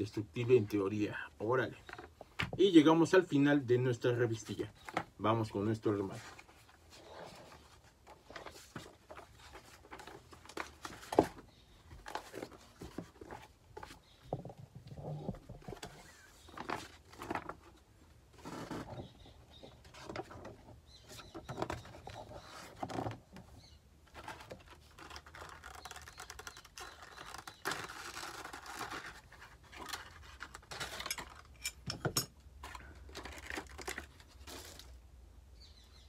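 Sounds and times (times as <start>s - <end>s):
plastic parts crinkling and clicking: 24.1s - 34.9s.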